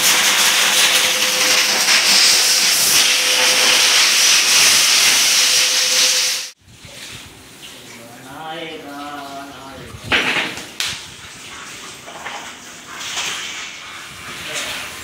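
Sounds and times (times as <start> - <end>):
pet dryer blowing air: 0.0 - 6.6.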